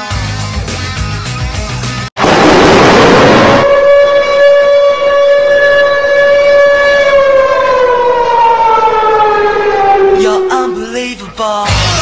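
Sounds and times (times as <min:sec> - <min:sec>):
goal horn long tone: 0:03.4 - 0:07.4.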